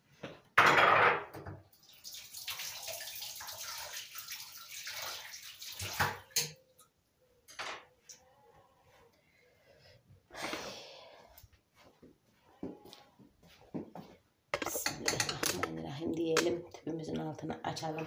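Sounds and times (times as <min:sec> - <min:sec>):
water running from tap: 0:01.7 - 0:06.6
knocks and splashes: 0:05.7 - 0:06.4.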